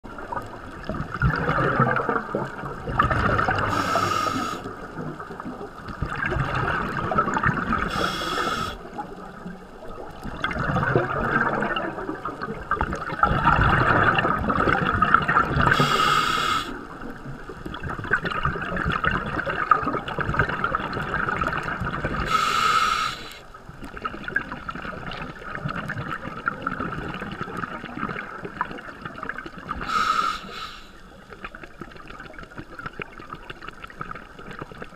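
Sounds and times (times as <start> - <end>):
exhaled bubbles rushing: 0.1 - 16.2, 16.8 - 22.6, 23.6 - 30.1
scuba regulator breathing: 3.6 - 4.8, 7.8 - 8.9, 15.7 - 16.8, 22.2 - 23.5, 29.8 - 31.1.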